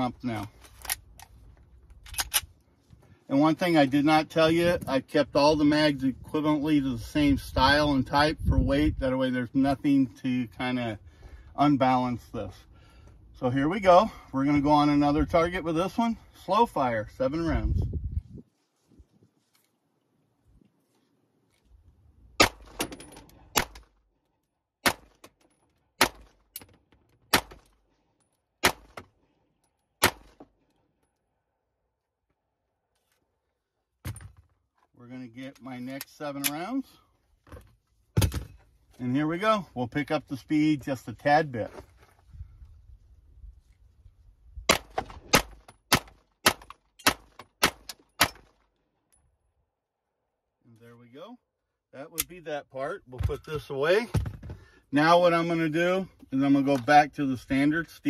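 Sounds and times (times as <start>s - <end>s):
pistol shots: 24.8s - 25.2s, 26.0s - 26.4s, 27.3s - 27.6s, 28.6s - 29.0s, 30.0s - 30.4s, 44.7s - 48.5s.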